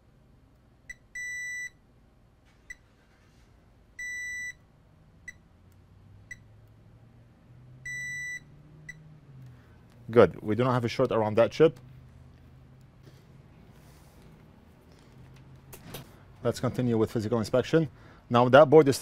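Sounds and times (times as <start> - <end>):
multimeter high beeps: 0.9 - 1.8, 4.0 - 4.6, 7.8 - 9.0.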